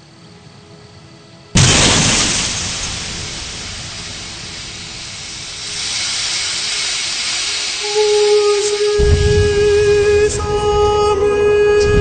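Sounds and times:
long hiss: 0:00.0 - 0:12.0
car crash impact: 0:01.6 - 0:07.5.

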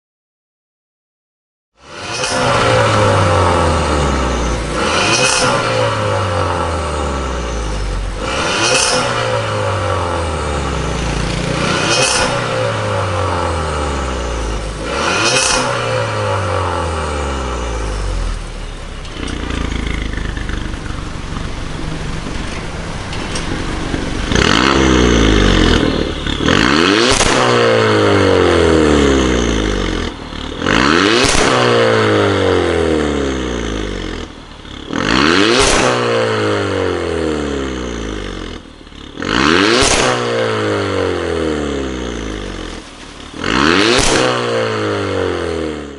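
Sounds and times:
car engine revving: 0:01.8 - 0:45.9
car engine idling: 0:01.9 - 0:15.1, 0:15.9 - 0:30.8, 0:32.1 - 0:35.1, 0:37.4 - 0:39.3, 0:41.6 - 0:43.8.

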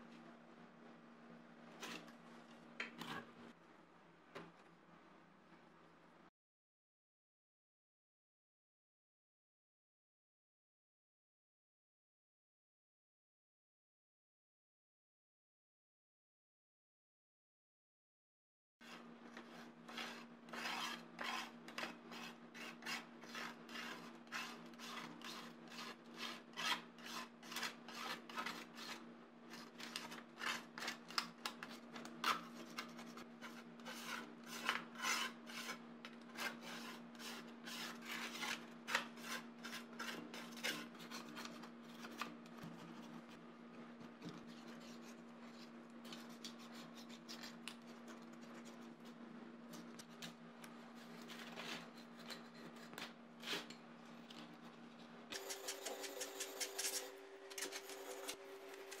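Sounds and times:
scraper rasping on metal: 0:18.8 - 0:31.0, 0:32.2 - 0:35.8.

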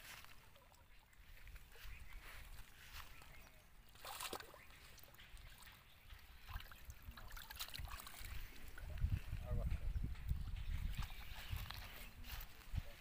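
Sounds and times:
hands splashing in pond water: 0:00.0 - 0:09.0.

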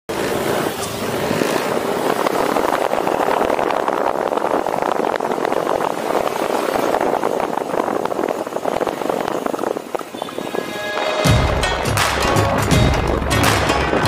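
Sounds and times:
motor scooter engine running: 0:00.1 - 0:10.4.

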